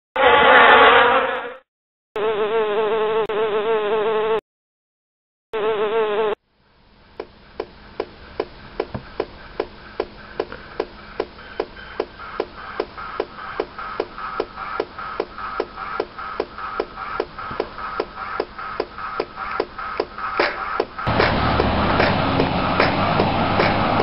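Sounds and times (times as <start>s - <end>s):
bee buzzing: 2.2s - 4.4s, 5.6s - 6.4s.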